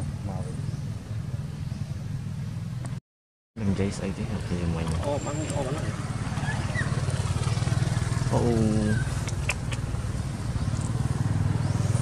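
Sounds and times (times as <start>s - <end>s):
small engine idling: 5.0s - 12.0s.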